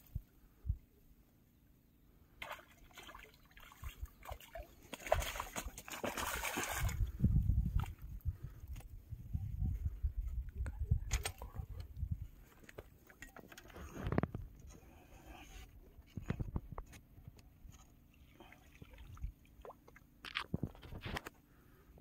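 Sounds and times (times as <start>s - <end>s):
low rumble on microphone: 6.8s - 12.5s.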